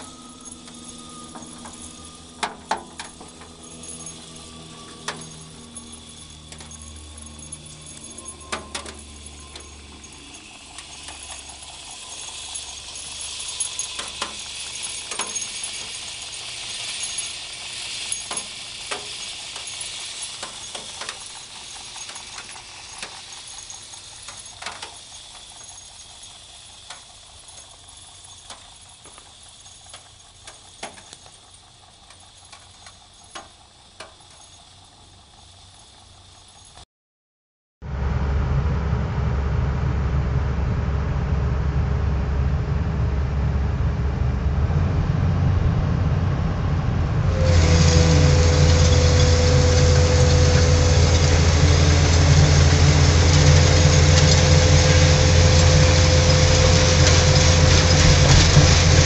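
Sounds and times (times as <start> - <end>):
soil hissing through screen: 9.3 - 33.1.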